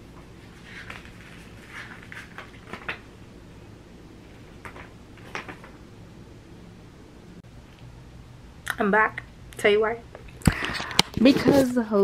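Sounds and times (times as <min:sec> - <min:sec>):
soft rustling: 0:00.2 - 0:03.1, 0:10.6 - 0:12.0.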